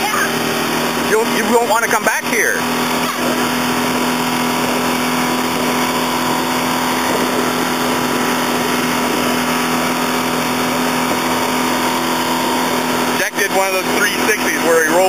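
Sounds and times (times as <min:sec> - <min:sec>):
outboard motor humming: 0:00.0 - 0:15.0
wind and water rushing: 0:00.0 - 0:15.0.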